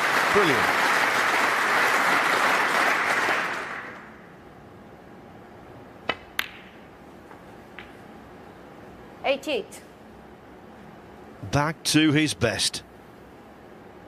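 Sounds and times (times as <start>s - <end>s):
audience applause: 0.0s - 4.2s
snooker ball clicks: 6.0s - 8.0s.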